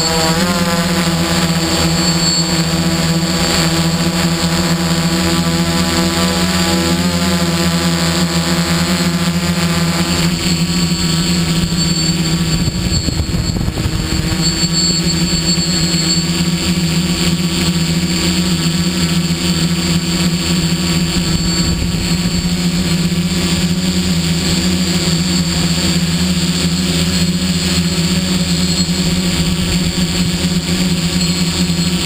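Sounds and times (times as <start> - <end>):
drone motors humming: 0.0 - 32.0
high motor whine: 0.0 - 32.0.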